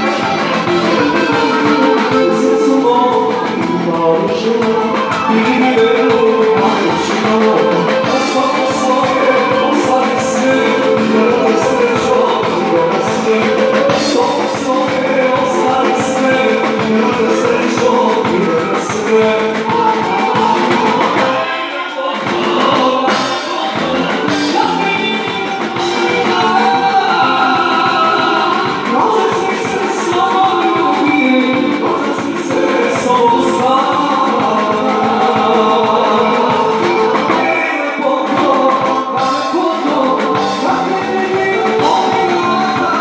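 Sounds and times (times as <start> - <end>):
live band playing: 0.0 - 43.0
person singing: 0.0 - 43.0.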